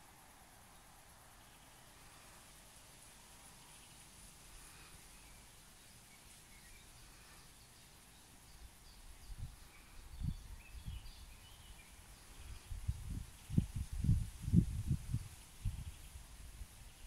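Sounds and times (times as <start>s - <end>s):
soft hiss: 0.0s - 17.0s
bird chirps: 4.8s - 13.7s.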